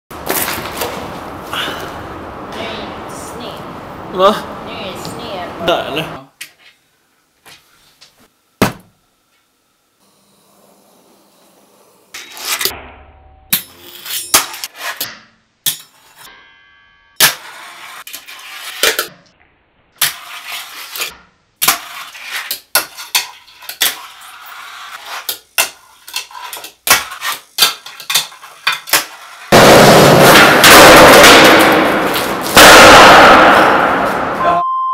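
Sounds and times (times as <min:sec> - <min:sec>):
skateboard rolling on concrete: 0:00.1 - 0:02.5, 0:17.4 - 0:19.1, 0:21.7 - 0:30.7.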